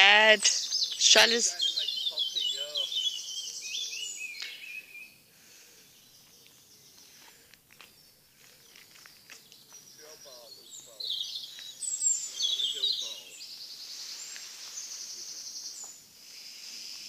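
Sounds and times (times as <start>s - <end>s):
songbird trilling: 0.0s - 5.2s, 7.9s - 16.0s
faint outdoor background: 0.0s - 17.0s.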